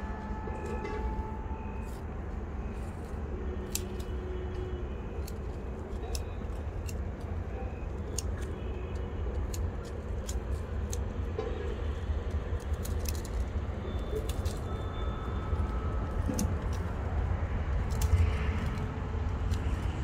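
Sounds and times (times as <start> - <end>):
pruning shears snipping: 2.7 - 11.8.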